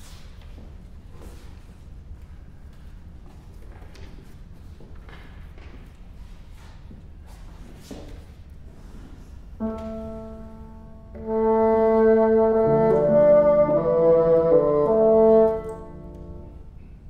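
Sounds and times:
bassoon long notes: 9.6s - 16.8s
piano notes: 9.6s - 17.0s.

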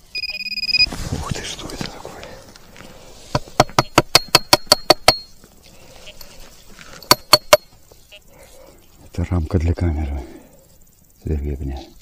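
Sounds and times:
sharp metallic taps: 3.3s - 5.4s, 7.0s - 7.8s.

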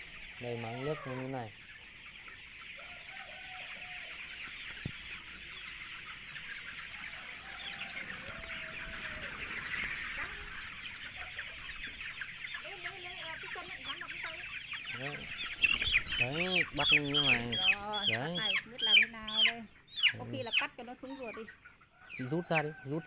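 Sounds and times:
longer lower chicken calls: 0.0s - 1.5s, 2.7s - 12.0s, 21.2s - 23.0s
chicks cheeping: 0.0s - 23.0s.

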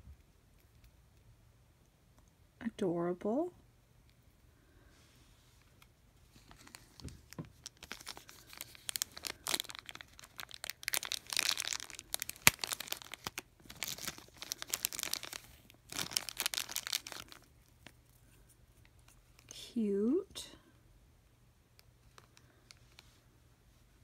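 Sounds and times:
plastic wrapping crinkling: 6.3s - 19.5s.

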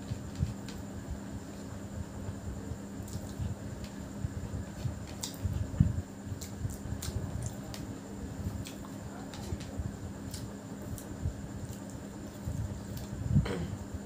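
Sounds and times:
steady low hum: 0.0s - 14.0s
fingers squishing rice: 3.0s - 13.2s.

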